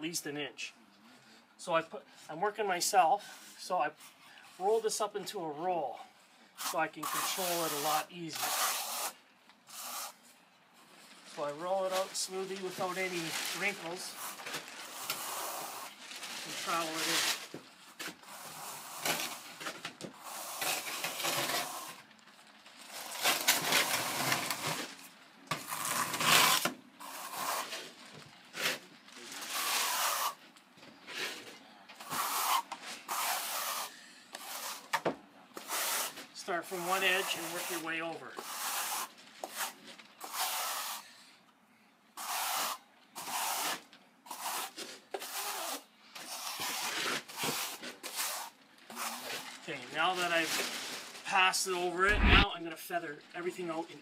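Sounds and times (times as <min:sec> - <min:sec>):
trowel scraping over stucco: 0:06.6 - 0:10.2, 0:11.4 - 0:19.5, 0:20.2 - 0:22.0, 0:25.5 - 0:30.4, 0:31.0 - 0:34.9, 0:35.6 - 0:41.2, 0:42.2 - 0:50.6, 0:52.0 - 0:52.5
trowel scraping wet stucco: 0:06.6 - 0:10.2, 0:29.4 - 0:30.4, 0:35.6 - 0:41.0, 0:42.2 - 0:49.4.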